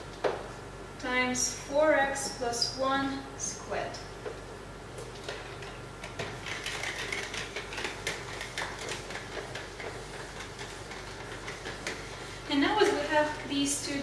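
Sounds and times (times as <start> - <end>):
eraser scrubbing a whiteboard: 6.4 - 13.4.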